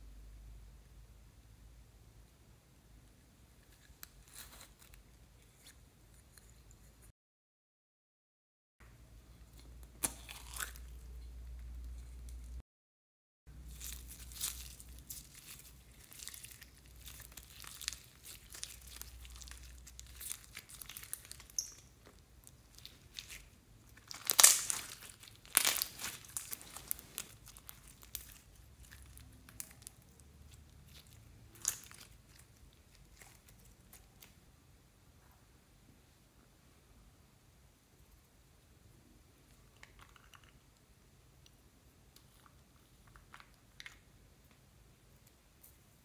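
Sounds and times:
slime squeezed crackling: 0:09.6 - 0:11.2, 0:13.6 - 0:34.4.

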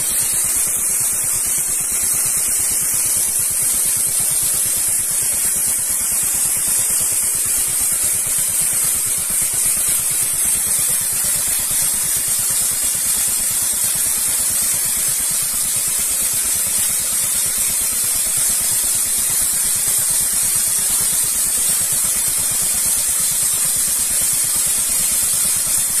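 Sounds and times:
brush bristles hissing on stone: 0:00.0 - 0:13.4.

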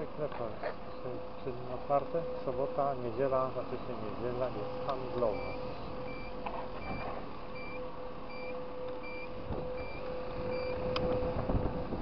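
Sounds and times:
turn-signal beeper beeping: 0:05.3 - 0:10.8.

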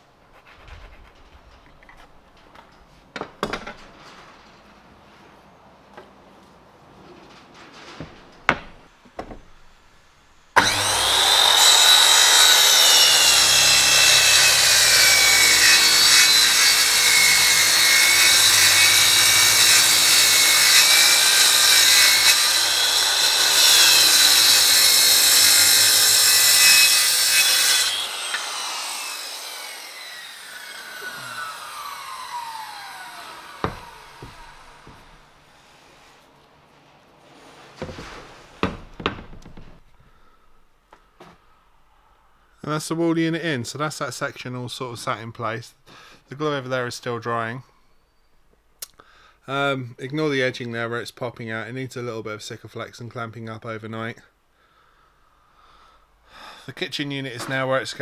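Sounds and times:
knocks: 0:00.6 - 0:03.9, 0:07.9 - 0:09.6, 0:33.6 - 0:35.3, 0:37.8 - 0:39.8
circular saw cutting plywood: 0:10.4 - 0:36.2.

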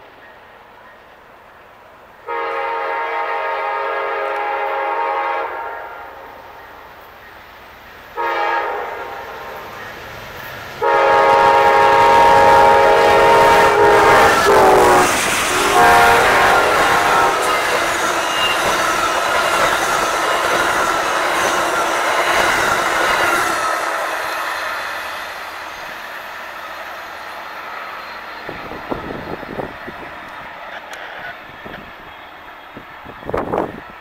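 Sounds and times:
train rolling on rails: 0:00.0 - 0:34.0
train wheels squealing: 0:09.5 - 0:10.8, 0:16.8 - 0:33.9.

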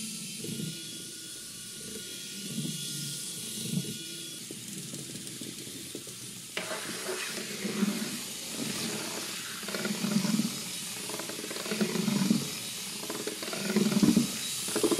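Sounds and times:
toy car motors whirring: 0:00.0 - 0:14.9
steady hiss: 0:04.7 - 0:11.7.

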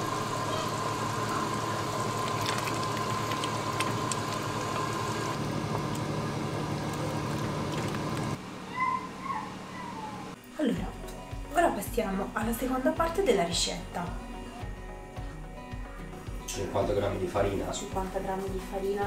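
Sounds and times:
sauce bubbling in a pot: 0:00.0 - 0:08.4.

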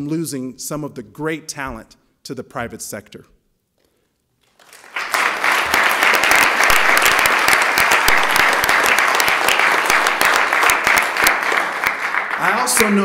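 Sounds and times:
crowd applauding: 0:04.4 - 0:13.0.

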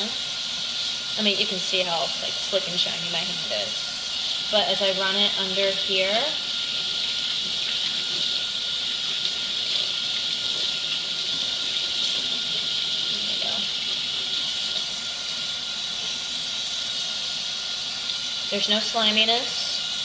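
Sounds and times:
faucet water pouring into sink: 0:00.0 - 0:20.0.

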